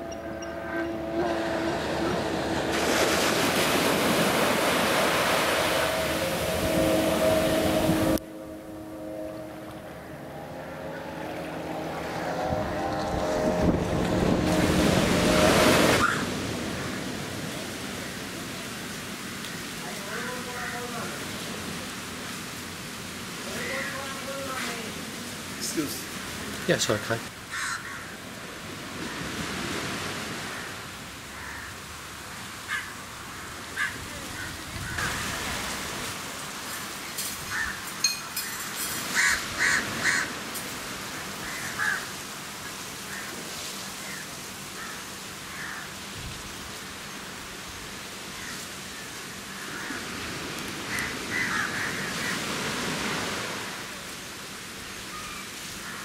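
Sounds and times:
steady motor hum: 0:00.0 - 0:17.5
sea waves: 0:00.0 - 0:56.0
wind on microphone: 0:00.8 - 0:10.2, 0:11.8 - 0:17.4.

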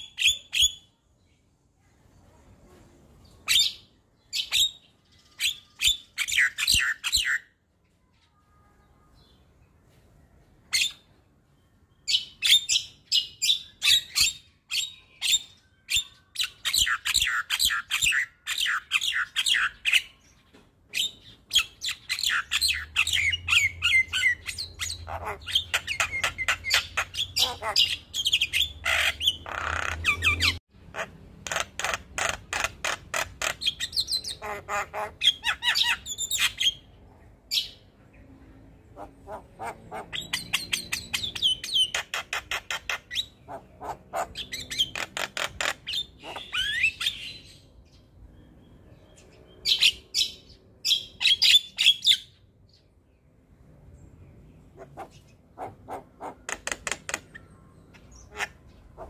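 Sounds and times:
bird chattering song: 0:00.0 - 0:01.0, 0:03.2 - 0:08.5, 0:11.9 - 0:53.0, 0:54.0 - 0:59.0.

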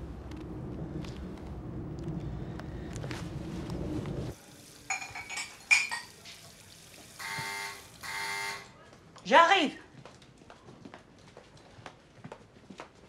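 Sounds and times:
traffic rumble: 0:00.0 - 0:04.4
dishes clinking in sink: 0:04.8 - 0:06.5
electric door buzzer: 0:07.2 - 0:08.7.

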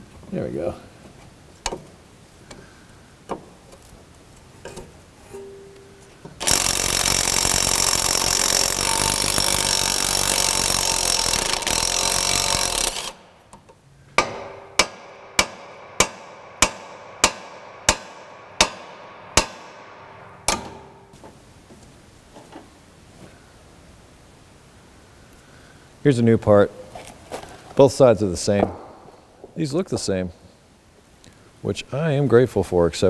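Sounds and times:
impact wrench running: 0:06.4 - 0:13.3
hammer blows on steel: 0:14.2 - 0:21.1.

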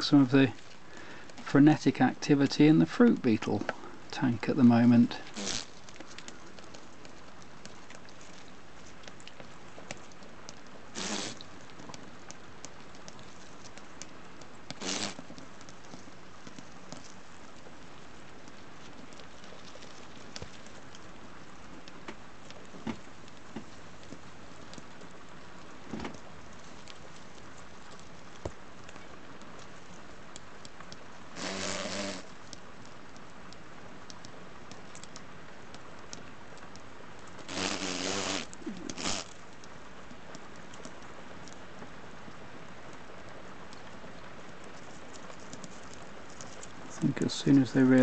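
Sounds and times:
beetles crackling over dry leaves: 0:00.0 - 0:48.0
steady hiss: 0:00.0 - 0:48.0
beetle wings buzzing: 0:05.3 - 0:05.9, 0:10.9 - 0:11.5, 0:14.7 - 0:15.3, 0:31.3 - 0:32.4, 0:37.5 - 0:39.3.

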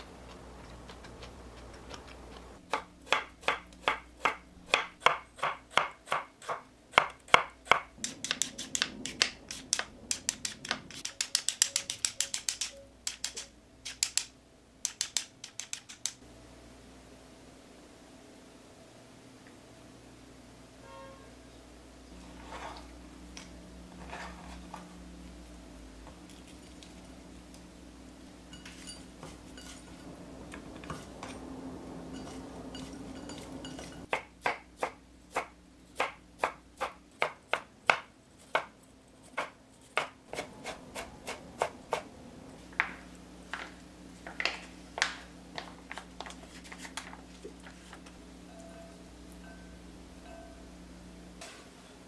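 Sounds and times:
knife chopping on a cutting board: 0:01.8 - 0:14.2, 0:39.3 - 0:42.0.

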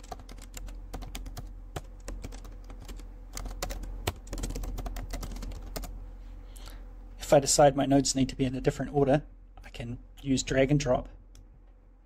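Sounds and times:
computer keyboard typing: 0:00.0 - 0:05.9.

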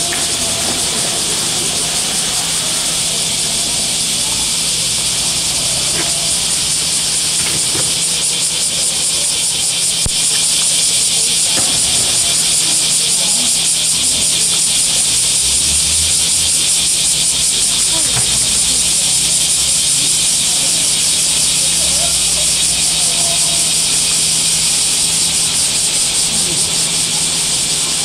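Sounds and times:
water splashing: 0:00.0 - 0:08.1
loud high hiss: 0:00.0 - 0:28.0.

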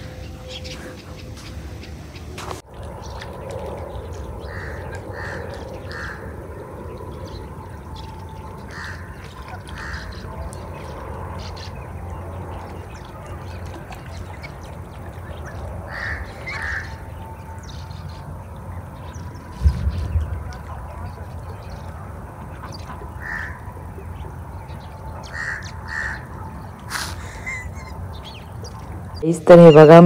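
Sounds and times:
low rumble: 0:00.0 - 0:26.9
crows cawing: 0:04.4 - 0:06.3, 0:08.7 - 0:10.2, 0:15.9 - 0:17.0, 0:23.2 - 0:23.7, 0:25.2 - 0:26.3.

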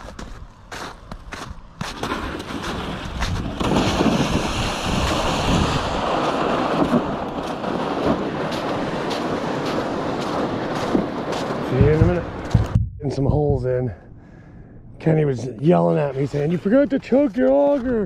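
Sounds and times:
wind buffeting microphone: 0:02.6 - 0:14.9.

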